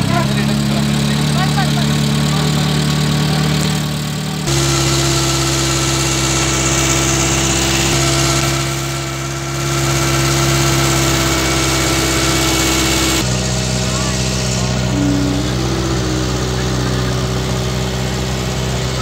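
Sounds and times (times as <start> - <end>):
motorboat engine drone: 0.0 - 19.0.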